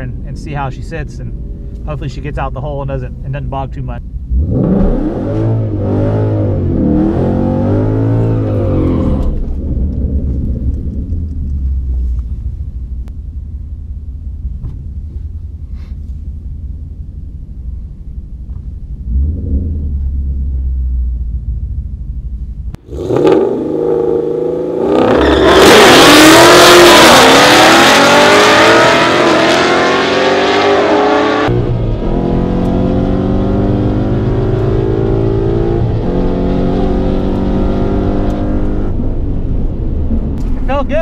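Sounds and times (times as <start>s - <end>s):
car engine revving and accelerating: 4.2s - 11.0s, 19.0s - 20.6s, 22.8s - 39.4s.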